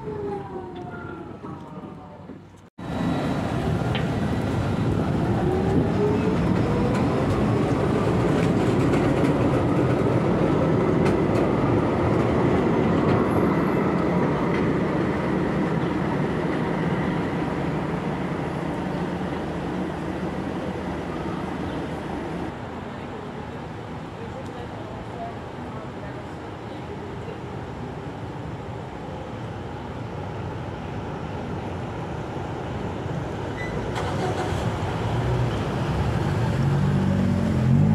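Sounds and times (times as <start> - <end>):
tram motor whine: 0.0 - 22.5
wheels rumbling on rails: 0.0 - 23.2, 30.8 - 37.9.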